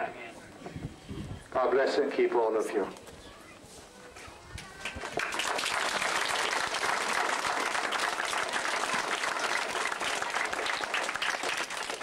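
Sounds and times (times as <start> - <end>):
crowd applauding: 4.8 - 12.0.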